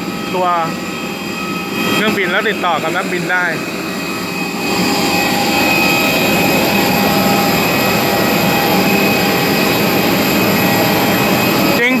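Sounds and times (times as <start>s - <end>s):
jet turbine whine: 0.0s - 12.0s.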